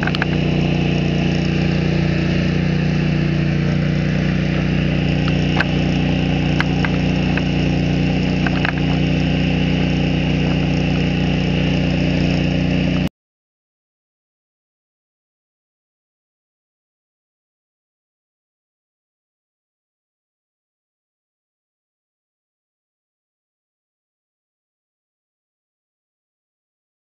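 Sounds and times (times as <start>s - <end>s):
engine idling: 0.0s - 13.1s.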